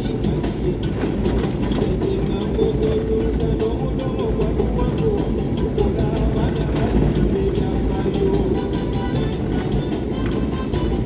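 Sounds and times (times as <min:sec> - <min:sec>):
vehicle engine and road rumble: 0:00.0 - 0:11.0
rattles and knocks from bumps: 0:00.4 - 0:04.0, 0:06.1 - 0:08.4.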